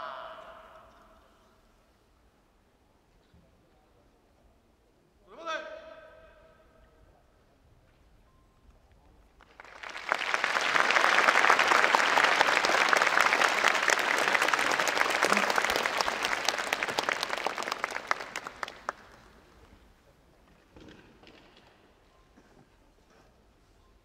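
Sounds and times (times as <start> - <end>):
audience applauding: 9.4 - 19.5.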